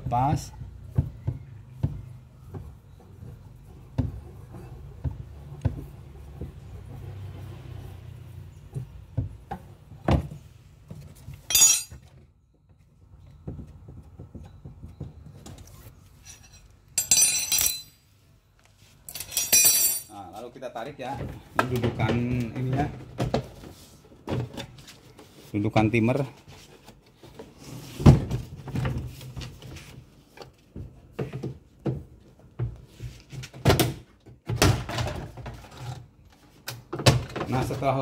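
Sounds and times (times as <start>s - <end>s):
hand tools clicking and knocking: 11.5s - 12.0s, 16.3s - 18.0s
metallic rattling: 11.5s - 12.0s, 16.4s - 18.0s.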